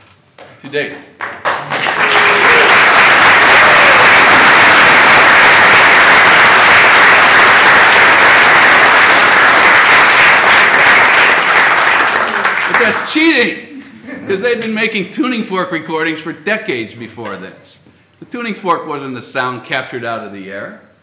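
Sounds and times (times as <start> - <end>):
audience applauding: 1.2 - 13.2.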